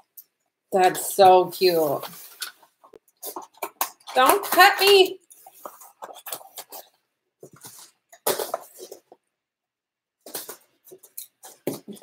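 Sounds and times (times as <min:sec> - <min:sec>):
packaging rustling: 0:01.6 - 0:09.2.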